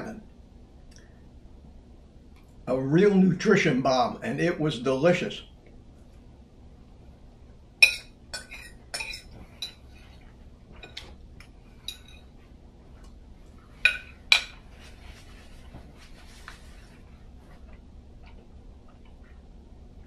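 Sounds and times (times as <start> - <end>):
metal fork clinking on a plate: 7.8 - 9.9, 11.8 - 12.3.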